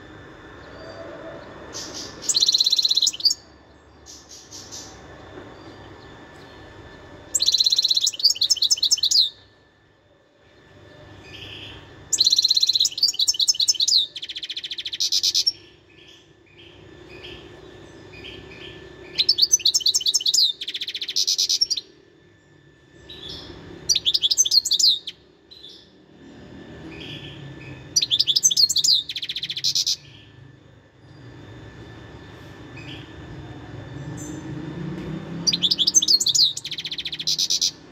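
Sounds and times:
goldfinch twittering song: 1.8s - 3.5s, 7.3s - 9.4s, 11.3s - 21.9s, 23.1s - 25.9s, 26.9s - 30.2s, 35.4s - 37.8s.

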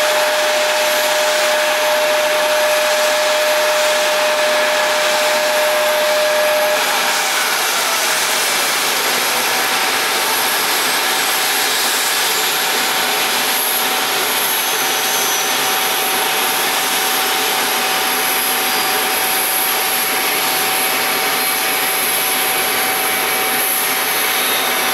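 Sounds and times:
high thin whistle: 0.0s - 8.5s, 13.7s - 20.4s, 23.6s - 24.9s
rushing air: 0.0s - 24.8s
jet turbine whine: 0.0s - 24.9s.

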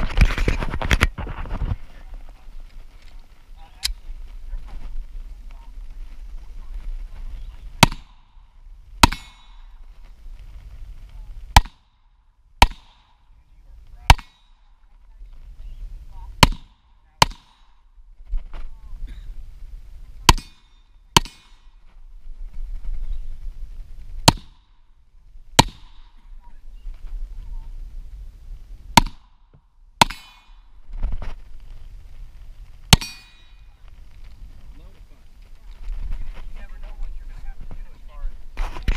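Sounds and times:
pistol shots: 7.8s - 8.4s, 9.0s - 9.8s, 12.6s - 13.2s, 14.1s - 14.6s.

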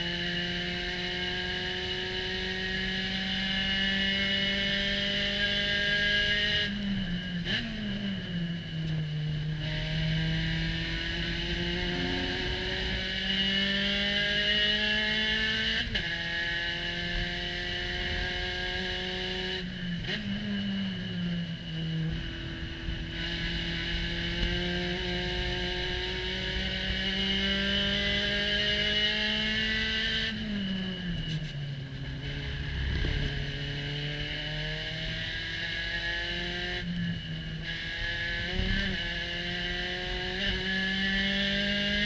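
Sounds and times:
racing car engine revving: 0.0s - 42.0s
throttle-blipped downshifts: 8.8s - 15.2s.

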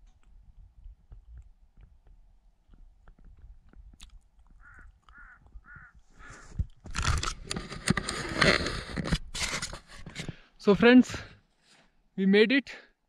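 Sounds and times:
bird cawing: 4.6s - 6.6s.

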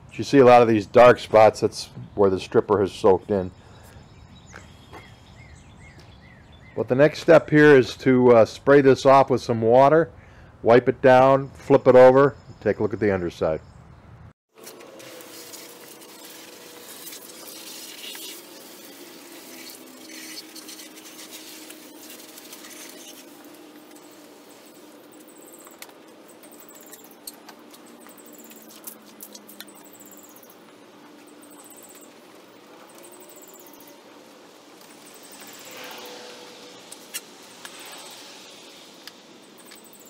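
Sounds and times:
hose nozzle spraying water: 14.5s - 30.7s, 31.3s - 39.9s.

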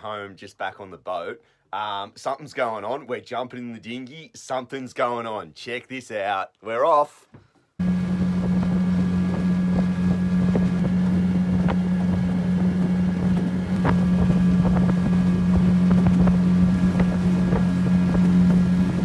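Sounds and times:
outboard motor droning: 7.8s - 19.0s.

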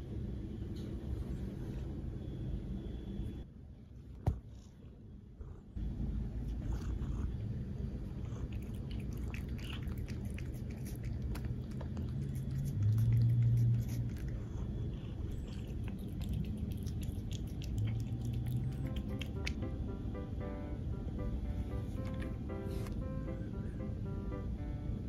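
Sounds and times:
low hum: 0.0s - 25.0s
cat licking: 6.3s - 19.7s.

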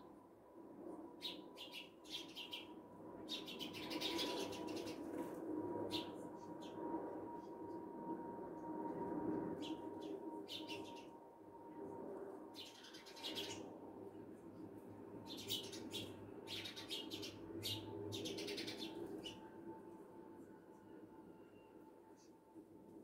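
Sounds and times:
sparrows chirping: 1.2s - 5.0s, 5.9s - 6.8s, 9.6s - 11.1s, 12.6s - 13.7s, 15.2s - 19.4s.

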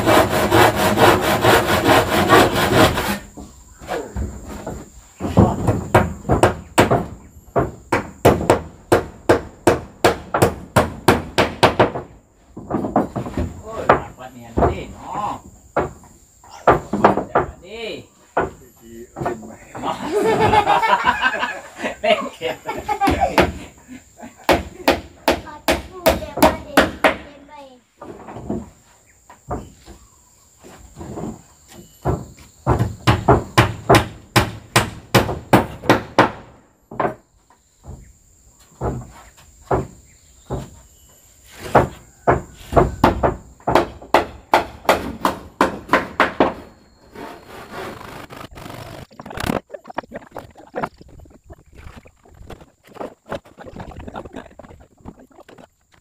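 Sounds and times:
quick strokes on wood: 0.0s - 3.4s, 47.1s - 49.1s
rough scraping on wood: 0.0s - 5.7s, 40.5s - 42.8s, 46.4s - 56.0s
knocks on wood: 4.6s - 14.9s, 15.7s - 17.6s, 32.0s - 37.2s, 38.8s - 40.8s, 41.7s - 46.7s
hammer striking nails into wood: 5.6s - 12.1s, 32.7s - 37.2s, 42.3s - 46.6s
voices: 16.4s - 24.5s, 48.8s - 55.8s.

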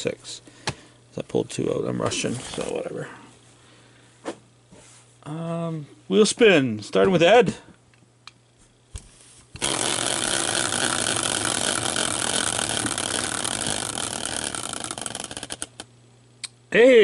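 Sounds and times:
spinning wheel ticking rattle: 9.6s - 15.9s.

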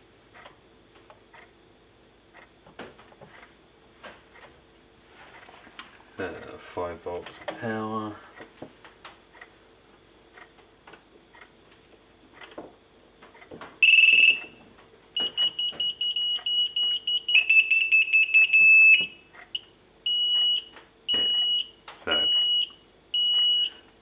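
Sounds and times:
high-pitched buzzer beeps: 13.8s - 14.6s, 15.2s - 23.8s.

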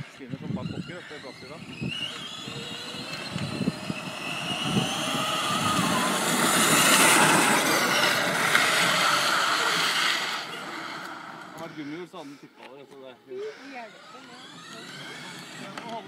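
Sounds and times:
electric motor whine: 0.2s - 11.8s, 13.4s - 16.0s
plastic tyres rolling on asphalt: 1.8s - 11.6s.

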